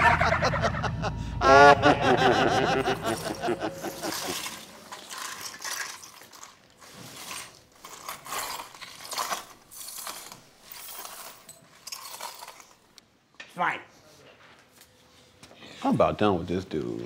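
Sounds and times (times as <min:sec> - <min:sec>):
debris scraped off hard floor: 0:03.2 - 0:12.8.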